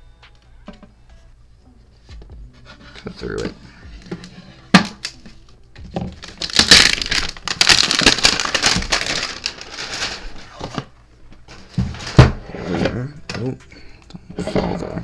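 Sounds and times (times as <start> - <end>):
plastic shrink wrap tearing: 6.0 - 10.6.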